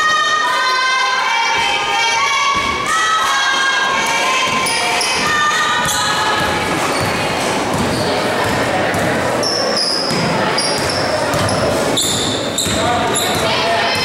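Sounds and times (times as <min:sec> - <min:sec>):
crowd cheering and shouting: 0:00.0 - 0:14.0
basketball bouncing on wooden floor: 0:04.5 - 0:09.4, 0:10.0 - 0:14.0.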